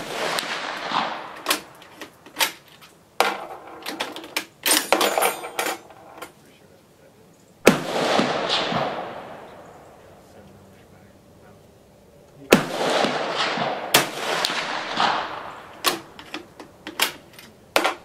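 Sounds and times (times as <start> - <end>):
rifle shots: 0.0 - 1.8, 7.6 - 10.1, 12.5 - 18.0.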